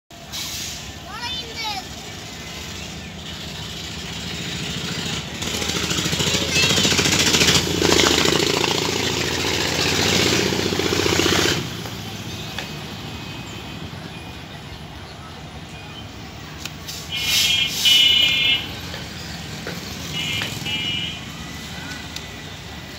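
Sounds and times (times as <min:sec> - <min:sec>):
diesel locomotive engine throbbing: 0:00.2 - 0:22.9
hissing rush: 0:16.8 - 0:18.3.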